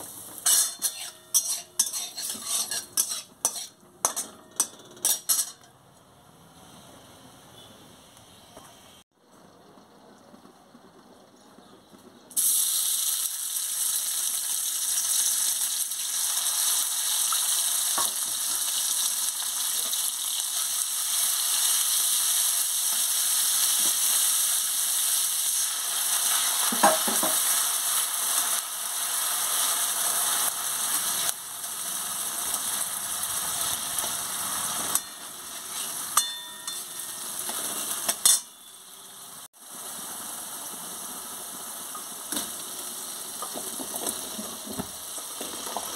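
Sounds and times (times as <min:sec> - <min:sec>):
paste sizzling in hot oil: 0:00.0 - 0:04.2, 0:12.4 - 0:38.3
spatula scraping a metal pan: 0:00.4 - 0:05.6, 0:34.8 - 0:38.7.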